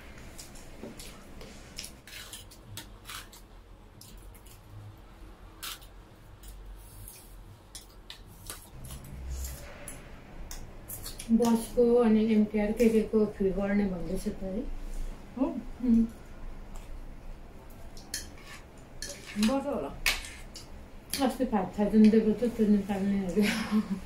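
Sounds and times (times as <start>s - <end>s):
forks scraping metal tray: 18.1s - 20.5s.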